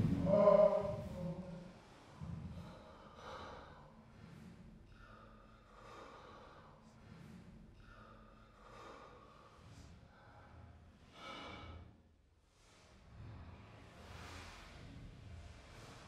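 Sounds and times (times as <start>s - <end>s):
person breathing hard: 0.0s - 12.2s.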